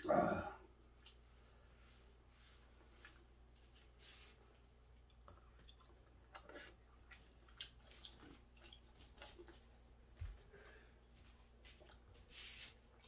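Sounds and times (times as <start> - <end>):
person chewing: 5.0 - 13.0.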